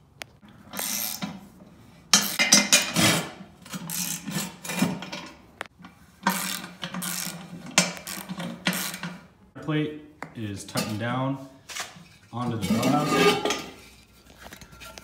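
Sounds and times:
ratchet wrench clicking: 0.8s - 1.2s, 3.9s - 4.4s, 6.2s - 9.0s.

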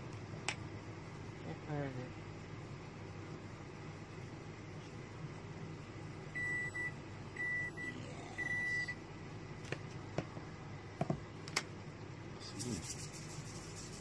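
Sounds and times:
low steady hum: 0.0s - 14.0s
electronic appliance beeps: 6.3s - 9.0s.

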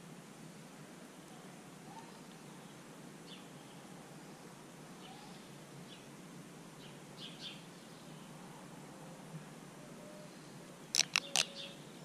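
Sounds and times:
low background hiss: 0.0s - 12.0s
faint bird chirps: 9.8s - 12.0s.

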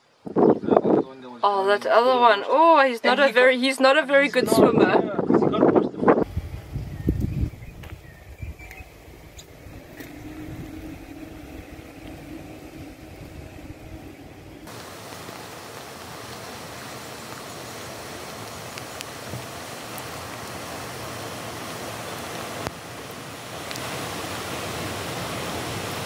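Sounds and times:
low rumble: 6.2s - 14.8s
faint steady hum: 6.3s - 19.1s
river rushing: 8.0s - 26.0s.

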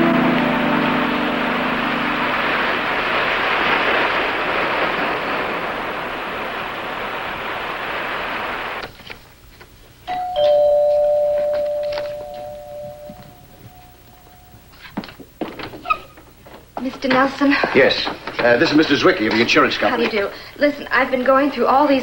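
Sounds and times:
surf washing on rocky shore: 0.0s - 8.8s
two-tone door chime: 10.1s - 14.7s.

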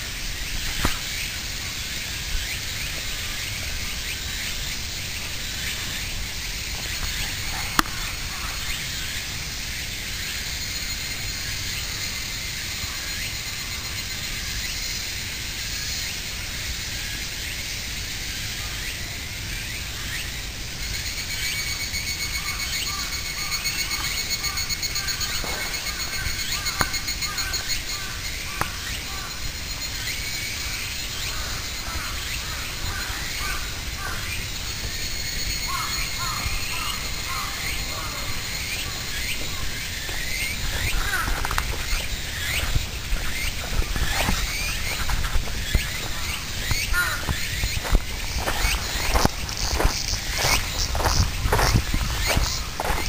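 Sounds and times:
wind rumble on microphone: 38.3s - 53.0s.

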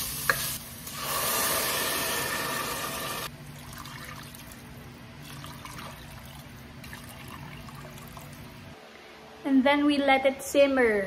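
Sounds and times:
water hissing in hot pot: 0.0s - 3.3s
liquid pouring: 3.2s - 8.5s.

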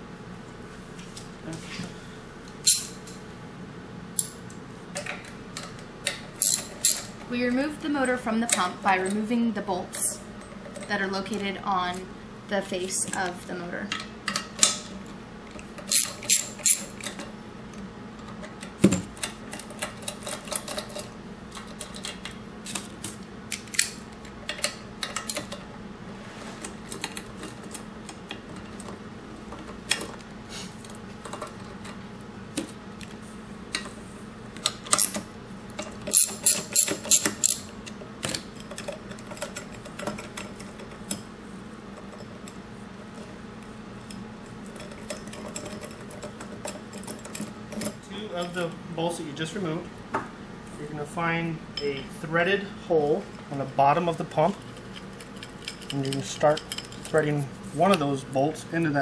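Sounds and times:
ratchet wrench clicking: 6.4s - 7.1s, 15.9s - 17.1s, 36.1s - 37.7s.

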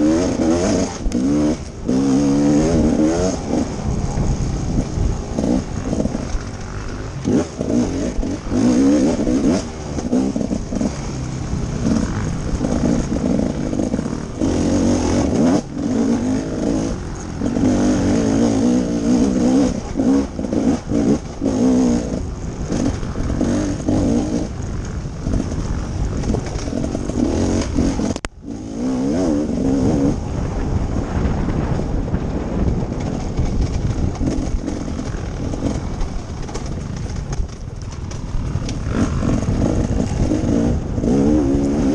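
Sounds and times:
dirt bike engine revving: 0.0s - 30.8s, 33.4s - 37.1s, 38.1s - 41.9s
wind noise: 0.0s - 41.9s.

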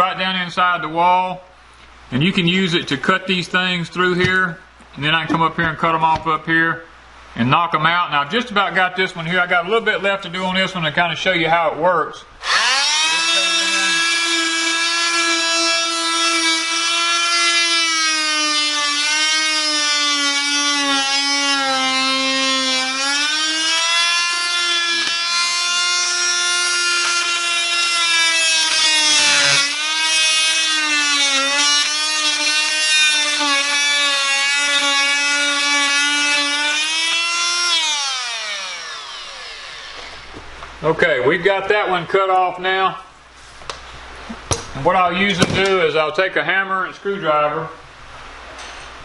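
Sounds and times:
oscillating multi-tool cutting: 12.4s - 40.3s.

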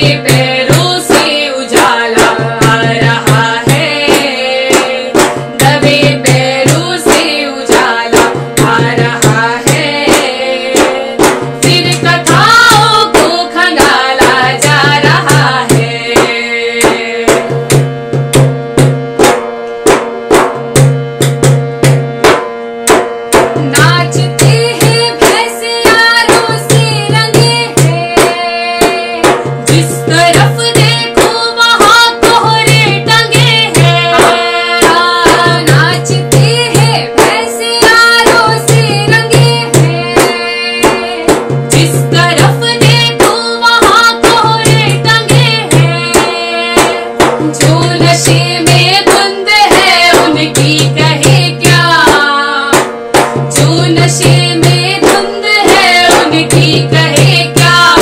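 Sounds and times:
women singing in unison: 0.0s - 17.6s, 23.6s - 58.0s
deep beat: 0.0s - 52.2s
hand-beaten drum: 0.0s - 58.0s
steady drone: 29.0s - 58.0s.

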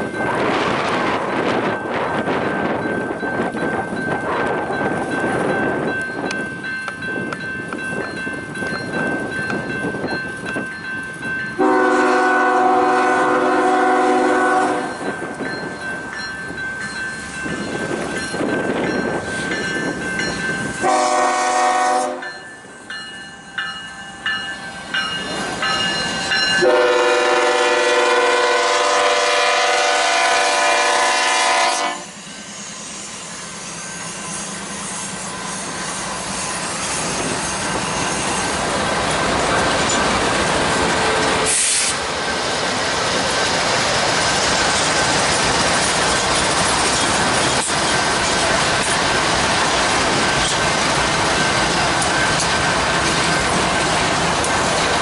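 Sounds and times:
train rumbling: 0.0s - 55.0s
locomotive horn blasts: 11.6s - 15.0s, 20.8s - 22.3s, 26.6s - 32.1s.

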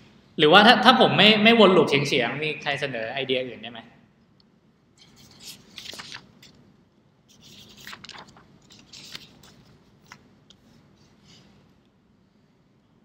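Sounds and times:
faint scraping and rustling: 5.0s - 6.6s, 7.3s - 12.4s.

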